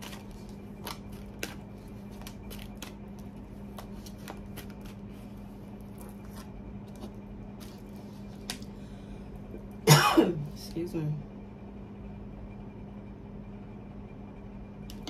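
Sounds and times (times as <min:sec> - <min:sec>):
cards being shuffled: 0:00.0 - 0:08.7
steady low hum: 0:00.0 - 0:15.0.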